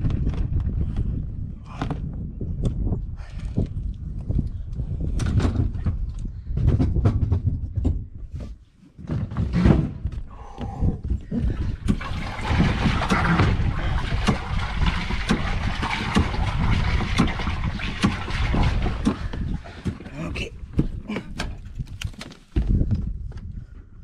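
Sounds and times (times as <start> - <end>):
steady low rumble: 10.1 - 22.0.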